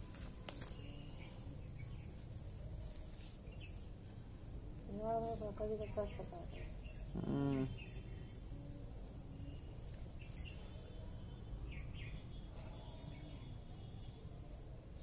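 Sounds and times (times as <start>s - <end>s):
outdoor background noise: 0.0s - 15.0s
faint bird chirps: 0.5s - 15.0s.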